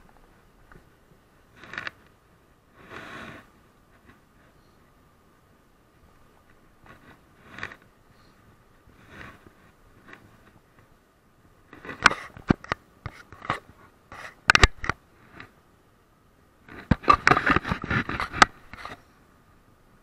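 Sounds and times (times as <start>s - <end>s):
bike rattling clicks and scrapes: 1.5s - 2.2s, 6.5s - 7.9s, 11.7s - 15.6s, 16.6s - 19.1s.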